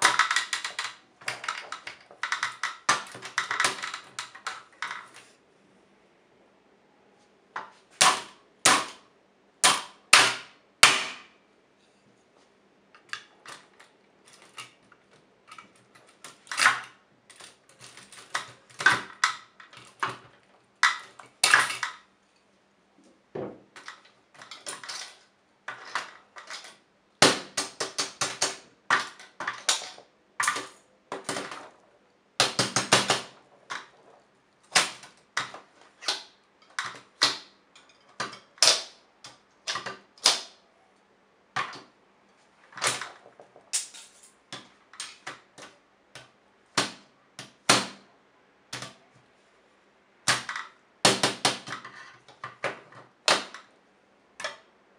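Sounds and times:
hammer striking typewriter: 0:09.6 - 0:11.3, 0:32.4 - 0:33.4.

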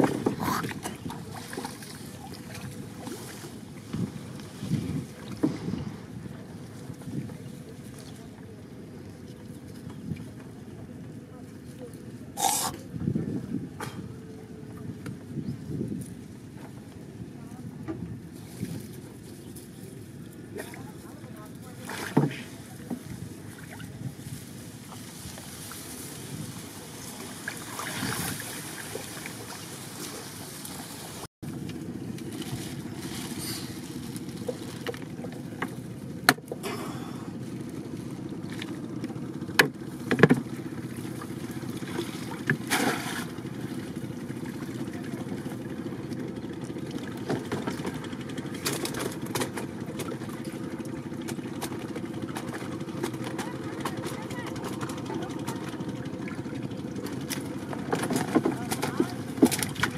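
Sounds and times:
outdoor background noise: 0:00.0 - 0:59.9.

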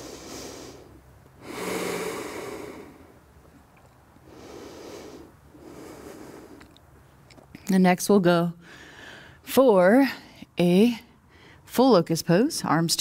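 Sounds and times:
woman breathing deeply: 0:00.0 - 0:03.2, 0:04.2 - 0:06.7, 0:08.6 - 0:09.4.

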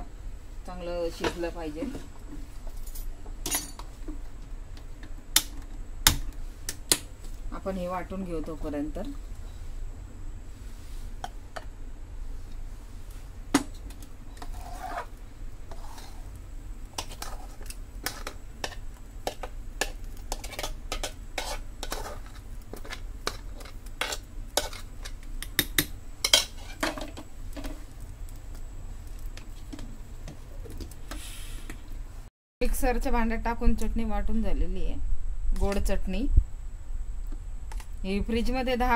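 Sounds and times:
utensils scraping steel: 0:14.4 - 0:15.1.

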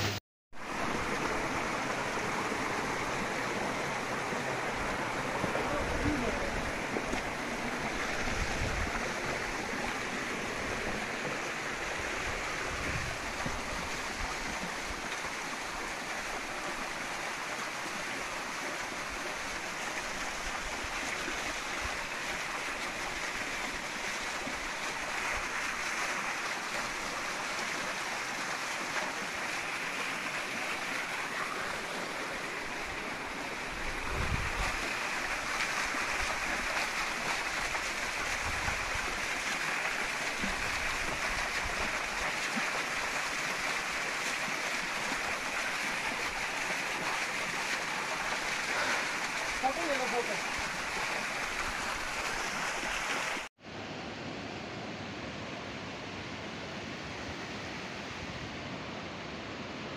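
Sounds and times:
waterfall splashing over rocks: 0:00.0 - 0:53.5.

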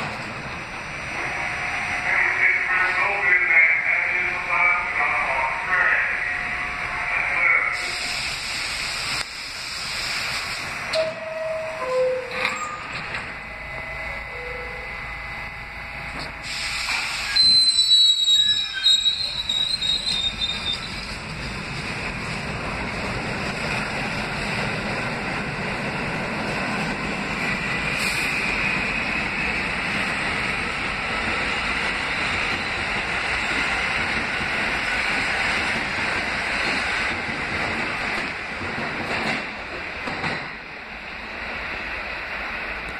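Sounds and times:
train cars running on rails: 0:00.0 - 0:42.9
air brake hiss: 0:07.8 - 0:10.8, 0:16.4 - 0:17.7, 0:28.0 - 0:28.5
high wheel squeal: 0:11.0 - 0:13.0, 0:16.4 - 0:21.1.

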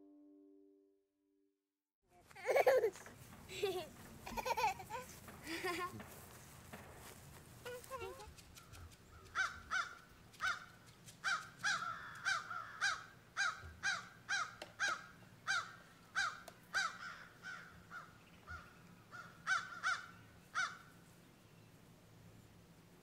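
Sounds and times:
bird calling: 0:07.6 - 0:20.9.

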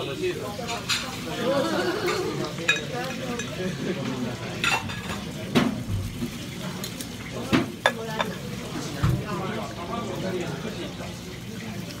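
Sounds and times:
restaurant chatter: 0:00.0 - 0:12.0
ceramic plates clinking: 0:02.0 - 0:03.6, 0:07.8 - 0:08.4.

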